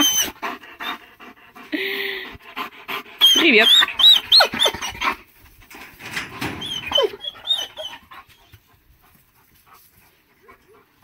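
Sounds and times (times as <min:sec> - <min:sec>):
dog whining: 0:00.0 - 0:01.0, 0:03.2 - 0:05.2, 0:06.6 - 0:08.5.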